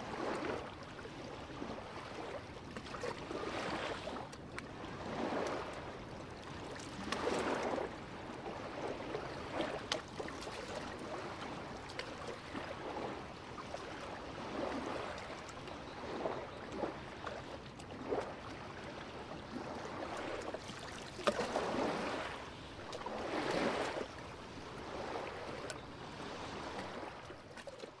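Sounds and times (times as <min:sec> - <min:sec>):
small waves lapping: 0:00.0 - 0:28.0
small clicking splashes: 0:11.8 - 0:12.4, 0:20.6 - 0:21.5.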